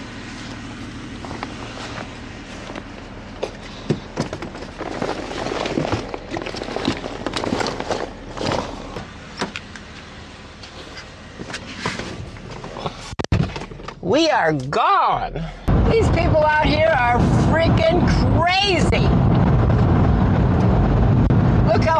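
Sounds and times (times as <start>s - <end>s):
gear bags and tanks knocking: 2.7s - 9.1s.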